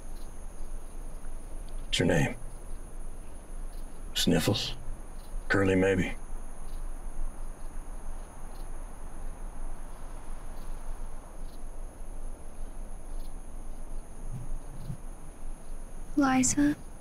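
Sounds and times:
faint hiss: 0.0 - 17.0
insect drone: 0.0 - 17.0
faint soft ticks: 0.1 - 1.9, 7.5 - 8.8.

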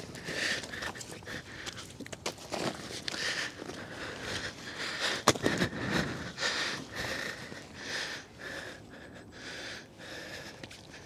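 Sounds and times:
person breathing hard and sniffing: 3.1 - 11.0.

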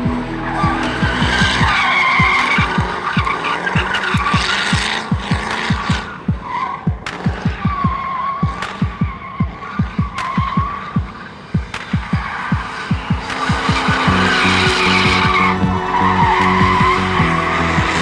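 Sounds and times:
electronic dance music: 0.0 - 18.0
tires squealing: 0.0 - 18.0.

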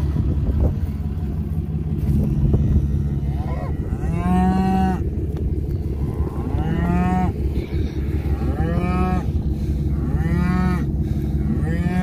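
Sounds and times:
steady low rumble: 0.0 - 12.0
cows mooing: 1.7 - 12.0.

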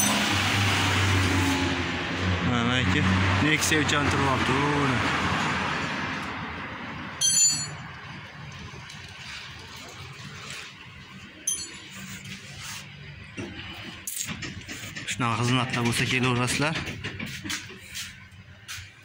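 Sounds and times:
sharp metallic clink: 0.0 - 0.4, 7.2 - 7.8, 11.5 - 11.9.

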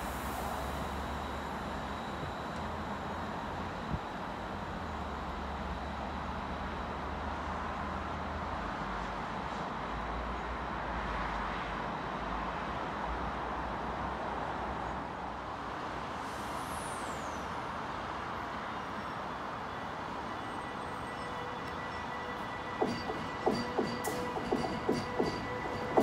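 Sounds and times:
electric train rumbling into station: 0.0 - 26.0
high falling squeal: 18.8 - 26.0.

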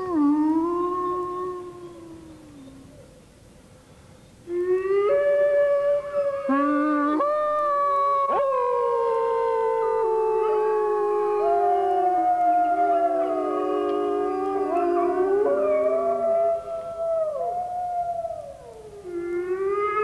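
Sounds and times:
wolves howling in chorus: 4.7 - 20.0.

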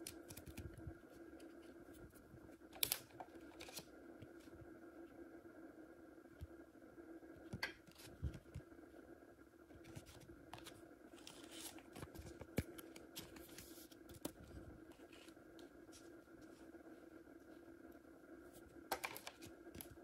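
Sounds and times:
faint hum: 0.0 - 20.0.

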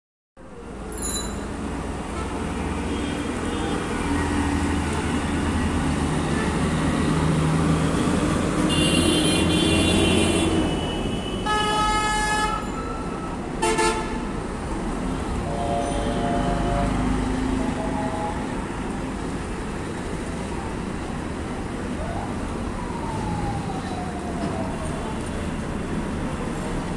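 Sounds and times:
heavy vehicle engines running: 0.4 - 11.1, 12.5 - 26.9
vehicle horns honking: 8.6 - 12.8, 13.6 - 14.3, 15.4 - 17.2.

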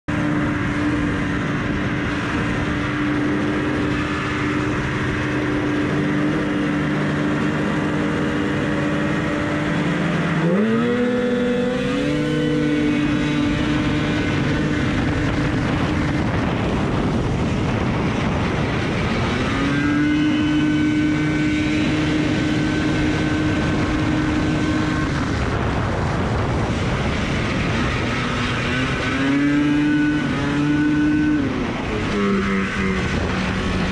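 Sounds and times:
other snowmobiles racing: 0.0 - 33.9
snowmobile engine running hard: 0.1 - 33.9.

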